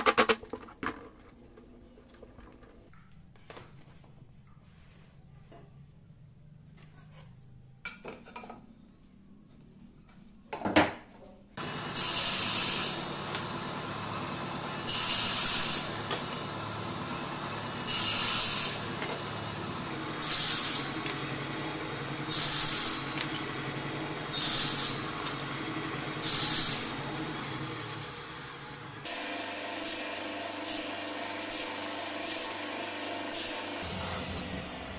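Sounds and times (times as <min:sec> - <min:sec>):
saw blade cutting wood: 0:11.6 - 0:28.0, 0:29.0 - 0:34.0
table saw running: 0:11.6 - 0:34.9.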